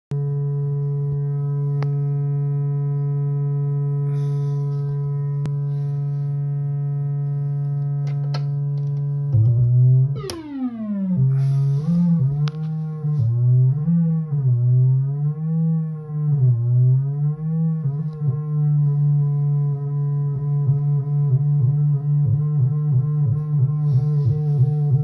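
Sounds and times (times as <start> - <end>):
buzzy synthesizer tone: 0.1 - 25.0.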